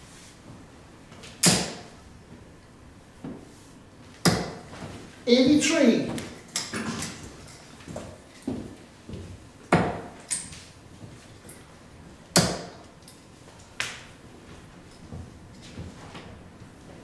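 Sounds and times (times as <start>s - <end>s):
darts striking dartboard: 1.4s - 1.9s, 4.2s - 4.7s, 9.7s - 10.2s, 12.4s - 12.8s.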